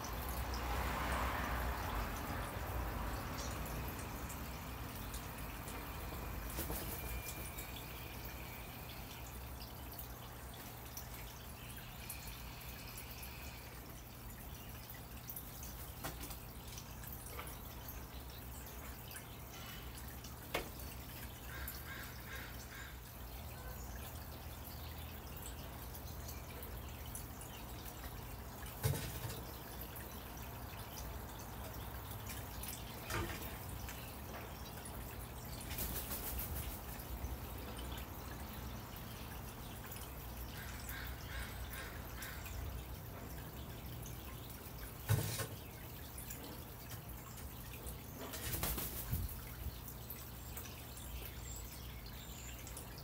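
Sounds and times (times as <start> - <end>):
wing flaps: 48.4 - 49.3.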